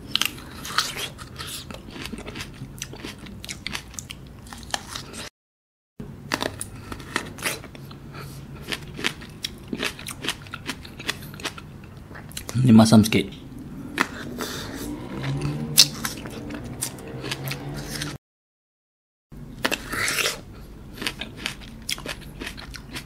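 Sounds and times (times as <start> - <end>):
biting and chewing plums: 0.0 - 5.3, 6.2 - 12.6, 15.4 - 18.2, 19.6 - 23.0.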